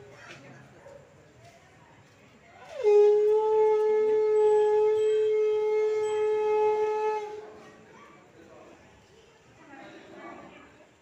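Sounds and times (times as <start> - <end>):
conch shell blown: 2.7 - 7.6.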